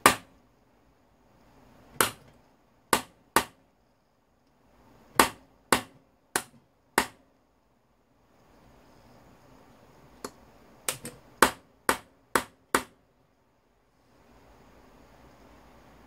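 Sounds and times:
hammer striking steel punch: 5.2s - 7.2s.

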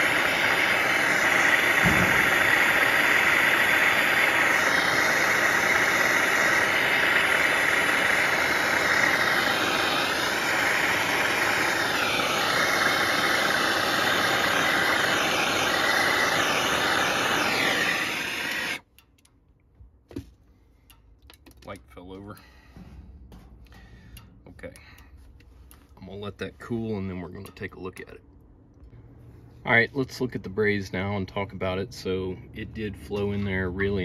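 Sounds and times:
gas torch hissing: 0.0s - 18.9s.

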